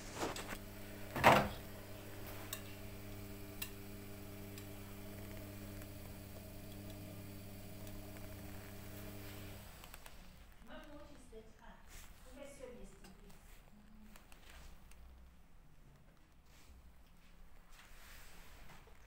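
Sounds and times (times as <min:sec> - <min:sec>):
washing machine humming: 0:00.0 - 0:10.0.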